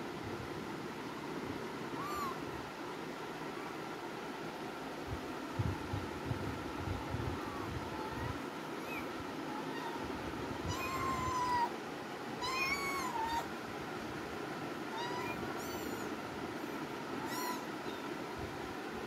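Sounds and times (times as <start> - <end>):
kittens meowing: 2.0 - 2.4, 10.7 - 11.7, 12.4 - 13.5, 14.9 - 18.1.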